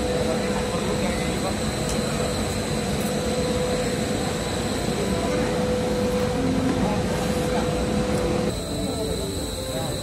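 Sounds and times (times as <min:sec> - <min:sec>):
cooling machinery whirring: 0:00.0 - 0:10.0
low crowd chatter: 0:00.0 - 0:10.0
high whistle: 0:08.5 - 0:10.0.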